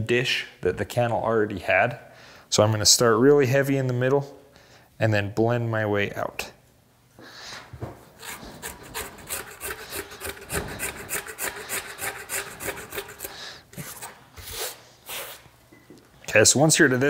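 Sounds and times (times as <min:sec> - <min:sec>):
tool scraping leather: 0:08.2 - 0:15.4.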